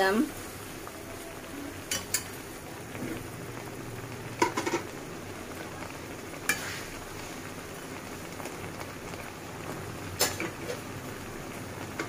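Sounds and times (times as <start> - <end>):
pan hissing: 6.5 - 7.5.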